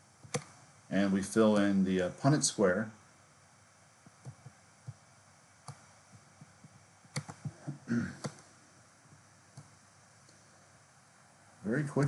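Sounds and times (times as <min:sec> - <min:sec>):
computer mouse clicks: 0:00.2 - 0:00.6, 0:04.0 - 0:05.0, 0:05.6 - 0:08.5, 0:09.1 - 0:10.6.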